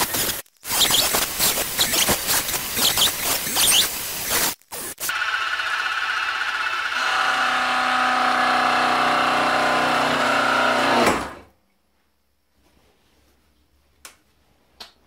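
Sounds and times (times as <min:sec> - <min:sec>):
milling machine motor running: 0:05.0 - 0:11.4.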